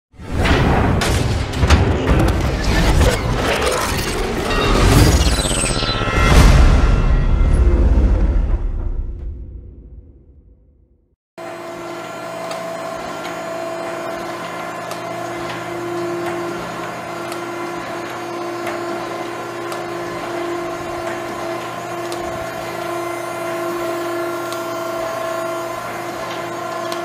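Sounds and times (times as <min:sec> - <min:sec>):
industrial machinery humming: 0:11.4 - 0:27.0.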